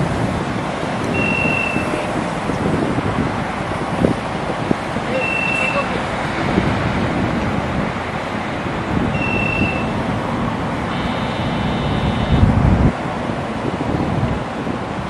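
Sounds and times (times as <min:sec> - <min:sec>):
tram equipment running: 0:00.0 - 0:15.0
wind noise on microphone: 0:00.0 - 0:15.0
short high beep: 0:01.1 - 0:02.1, 0:05.1 - 0:06.0, 0:09.2 - 0:09.9, 0:10.9 - 0:12.5
high buzzing tone: 0:01.1 - 0:02.2, 0:09.1 - 0:10.0, 0:10.9 - 0:12.6.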